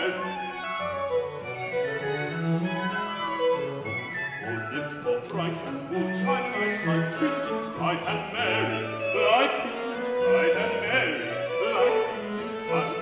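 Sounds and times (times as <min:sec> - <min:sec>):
man singing with vibrato: 0:00.0 - 0:00.6, 0:04.4 - 0:13.0
violins: 0:00.0 - 0:13.0.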